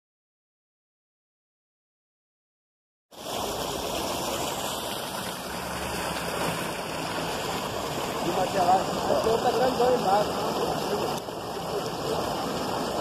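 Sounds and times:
water rushing from a pipe: 3.1s - 13.0s.

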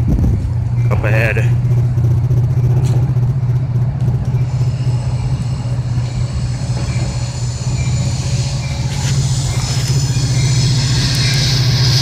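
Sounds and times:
low engine drone: 0.0s - 12.0s
faint high whine: 4.2s - 12.0s.

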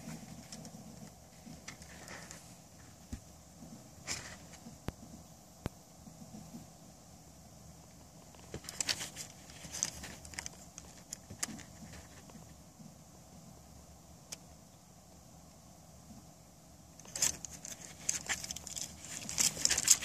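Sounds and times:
handling rustle: 0.0s - 4.7s, 8.3s - 12.6s, 17.0s - 20.0s.

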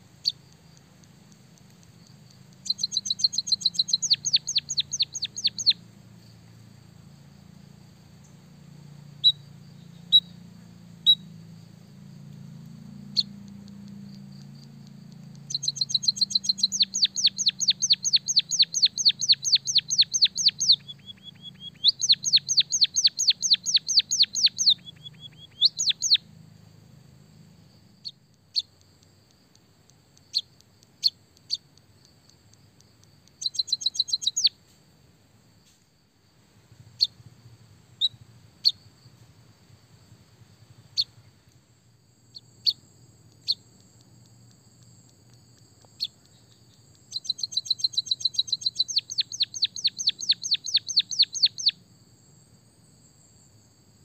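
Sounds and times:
finch chirping: 1.8s - 5.8s, 13.1s - 14.0s, 15.1s - 26.2s, 28.0s - 28.8s, 33.3s - 34.6s, 37.0s - 37.2s, 46.0s - 51.8s.

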